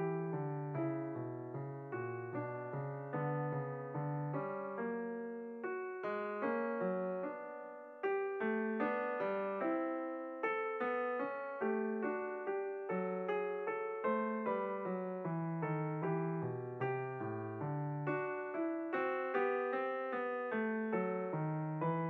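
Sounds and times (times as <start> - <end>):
calm piano melody: 0.0 - 22.0.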